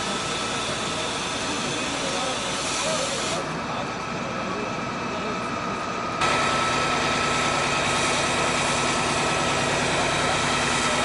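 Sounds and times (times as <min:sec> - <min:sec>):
hose spraying water: 0:00.0 - 0:03.5, 0:06.2 - 0:11.0
fire engine running: 0:00.0 - 0:11.0.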